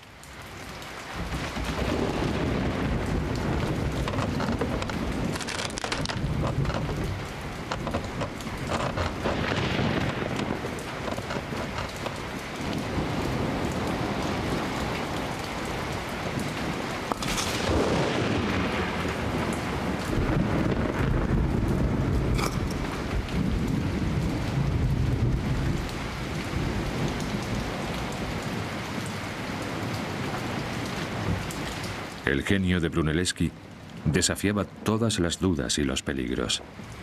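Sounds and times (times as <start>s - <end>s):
heavy rain: 0.0s - 37.0s
rumbling thunder: 1.1s - 29.1s, 29.7s - 31.6s
thunder crash: 1.2s - 11.8s, 17.1s - 25.7s.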